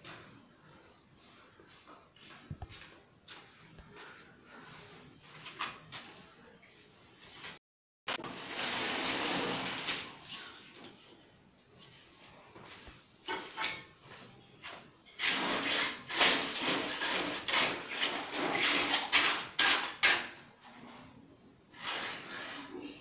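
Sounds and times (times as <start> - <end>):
trowel scraping wet concrete: 15.1 - 20.8, 21.7 - 23.0.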